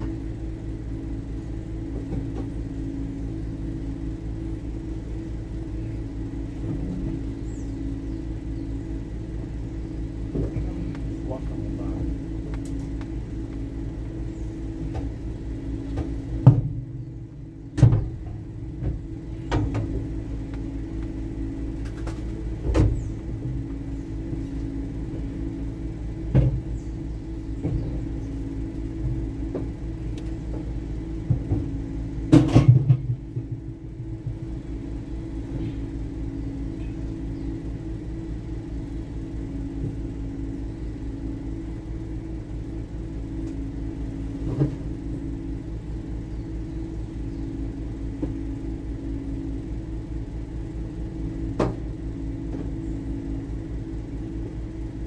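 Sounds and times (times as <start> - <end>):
engine humming: 0.0 - 55.0
sharp knocks and thumps: 15.9 - 16.9, 26.3 - 26.7.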